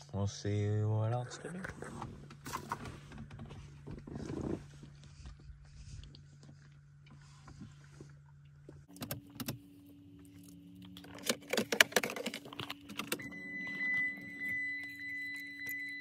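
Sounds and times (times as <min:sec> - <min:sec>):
car keys jangling: 0:10.3 - 0:16.0
high electronic tone: 0:13.2 - 0:16.0.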